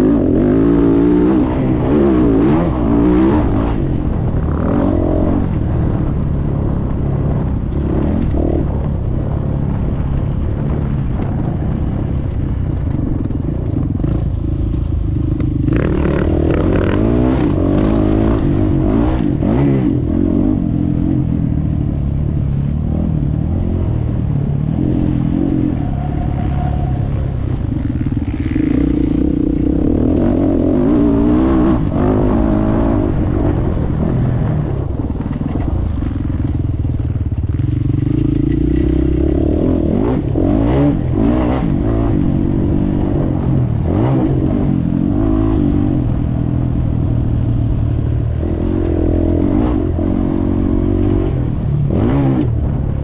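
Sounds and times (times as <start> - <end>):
motorbike engine revving: 13.5 - 53.0.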